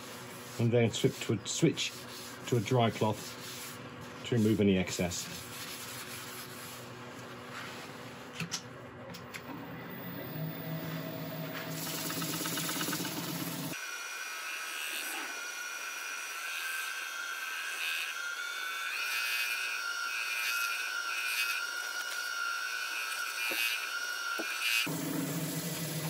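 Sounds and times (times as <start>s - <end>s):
wood lathe motor whining: 9.4s - 26.0s.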